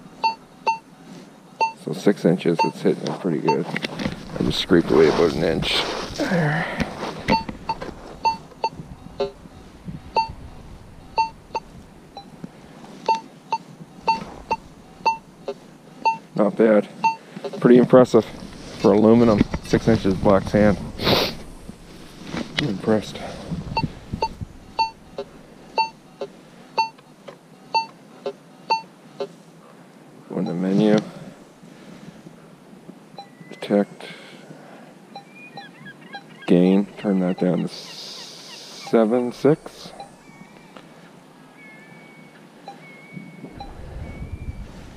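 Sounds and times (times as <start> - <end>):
metal detector high beeps: 0.2 - 0.9, 1.6 - 1.8, 7.3 - 9.4, 10.1 - 10.4, 11.1 - 12.3, 13.1 - 15.3, 16.0 - 16.3, 23.8 - 25.0, 25.8 - 26.0, 39.7 - 40.7, 41.5 - 44.6
metal detector low tone: 7.2 - 12.4, 18.2 - 26.0, 41.6 - 44.9.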